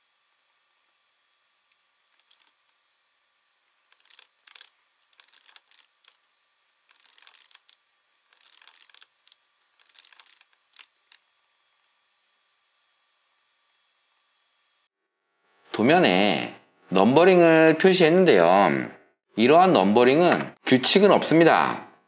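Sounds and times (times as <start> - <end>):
keyboard typing: 4.0 - 6.2, 6.9 - 7.8, 8.4 - 10.9.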